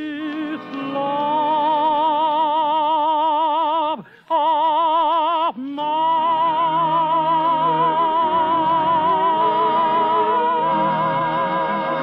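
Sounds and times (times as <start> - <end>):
orchestra: 0.0 - 2.6, 6.2 - 12.0
man singing with vibrato: 0.0 - 12.0.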